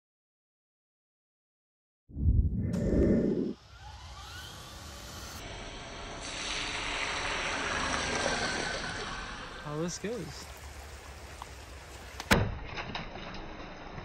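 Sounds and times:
low boom: 2.1 - 3.6
creek water rushing: 8.1 - 12.3.

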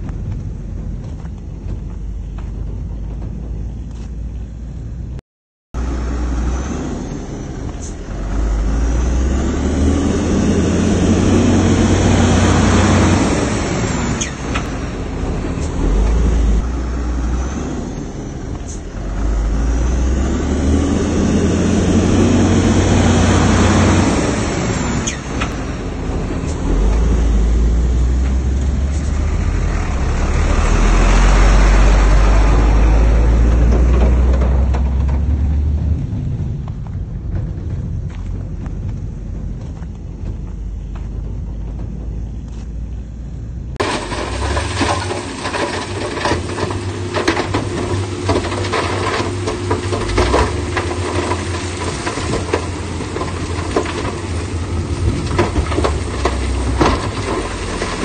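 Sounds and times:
diesel construction machinery running: 0.0 - 5.2, 5.8 - 58.0.

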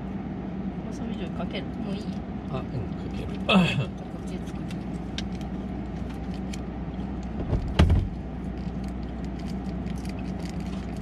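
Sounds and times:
low mechanical hum: 0.0 - 11.0
dull thump: 7.4 - 8.1.

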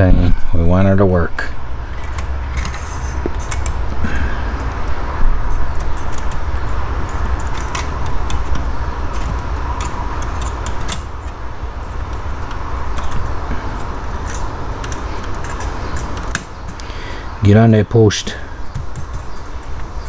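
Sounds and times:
steady low hum: 0.0 - 20.0
metal and plastic clicks: 5.7 - 11.4.

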